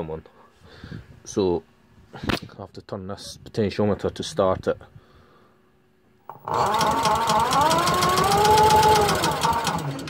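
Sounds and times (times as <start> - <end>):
electric motor cranking engine: 6.3 - 10.0.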